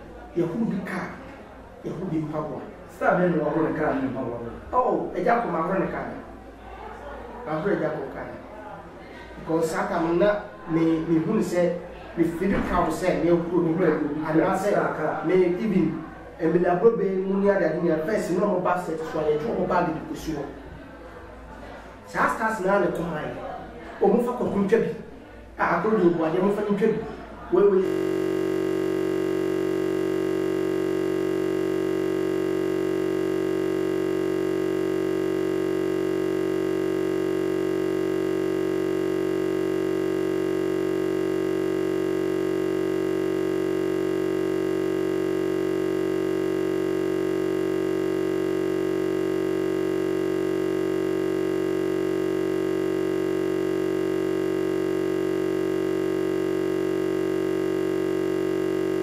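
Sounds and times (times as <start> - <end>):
electronic buzzing drone: 27.8 - 59.0.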